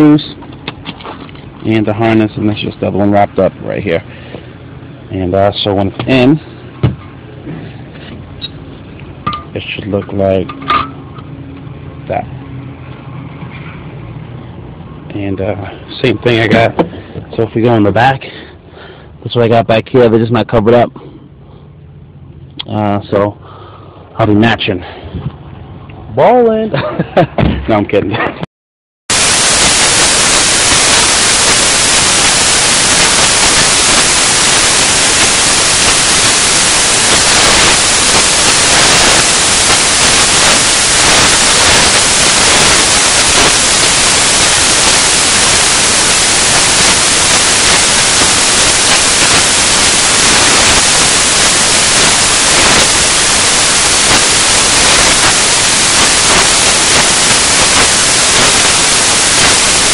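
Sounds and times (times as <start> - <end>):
static hiss: 0.0 - 19.9, 29.1 - 59.9.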